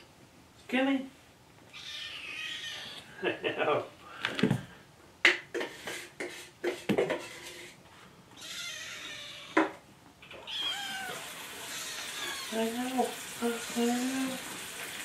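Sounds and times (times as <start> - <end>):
kittens meowing: 1.7 - 3.1, 8.4 - 9.7, 10.3 - 12.7.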